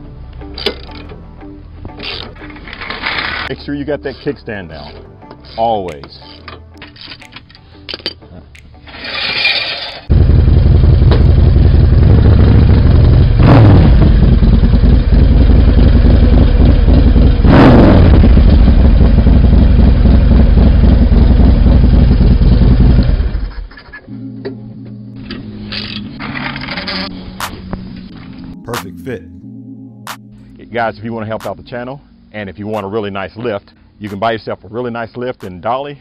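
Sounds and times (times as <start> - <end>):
motorcycle engine starting and idling: 10.1 - 23.8.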